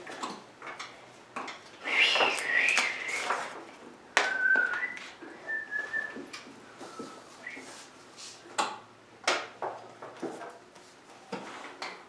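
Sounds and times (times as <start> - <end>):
child whistling: 1.9 - 3.2, 4.3 - 6.2.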